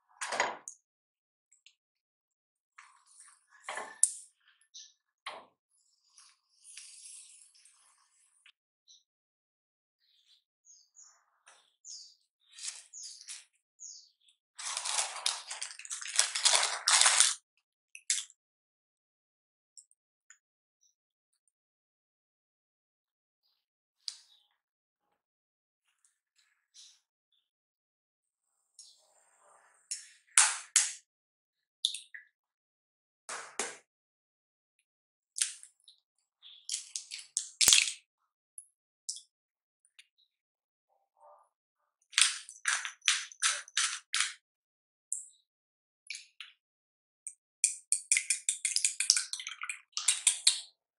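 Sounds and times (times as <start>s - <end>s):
parchment paper crinkling: 14.6s - 17.4s.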